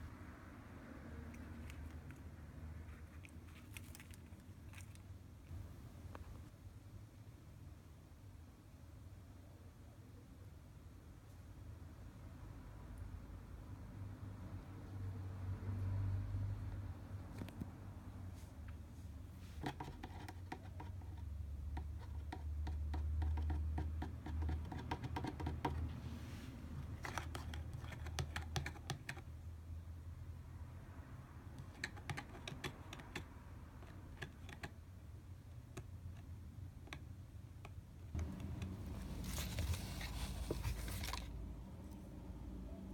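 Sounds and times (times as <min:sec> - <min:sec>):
cat claws scratching cardboard: 0:19.5 - 0:25.9, 0:26.8 - 0:29.3, 0:31.5 - 0:34.8
cardboard rustling: 0:38.2 - 0:41.4.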